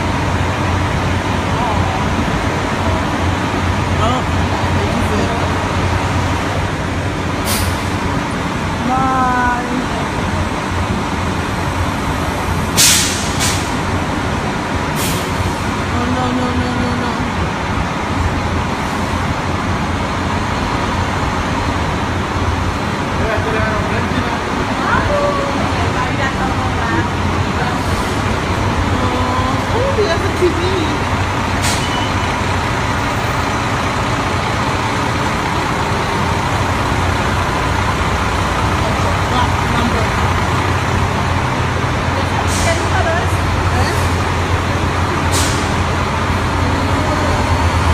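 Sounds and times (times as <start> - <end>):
bus engine idling: 0.0 - 47.9
air release hisses: 12.8 - 13.7.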